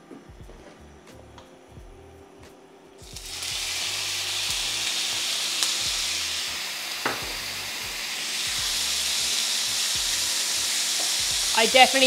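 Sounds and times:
meat sizzling in a frying pan: 3.0s - 12.0s.

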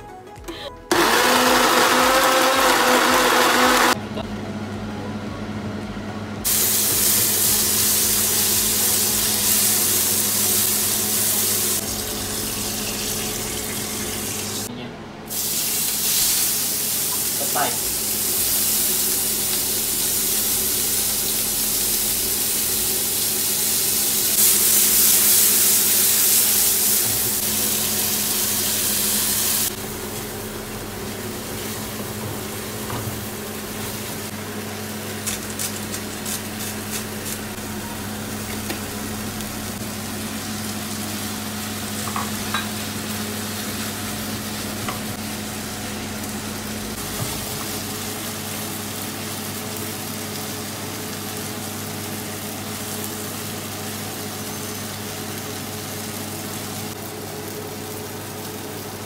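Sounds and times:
oil sizzling in a frying pan: 6.5s - 14.7s, 15.3s - 59.0s.

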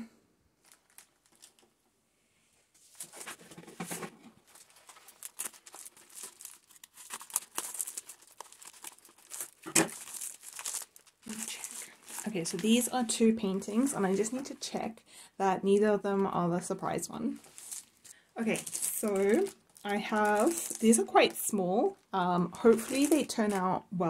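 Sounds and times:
plastic mailer crinkling: 0.6s - 1.8s, 2.9s - 14.5s, 17.3s - 21.6s, 22.5s - 23.8s
sharp plastic crackle: 0.6s - 1.8s, 2.9s - 13.2s, 17.4s - 22.0s, 22.6s - 23.8s.

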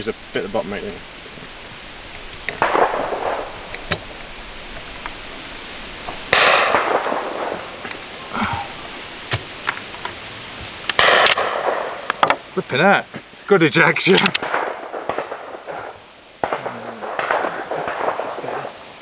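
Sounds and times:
echoing rifle shots: 2.6s - 3.9s, 6.2s - 7.8s, 11.0s - 12.2s, 14.1s - 18.9s.

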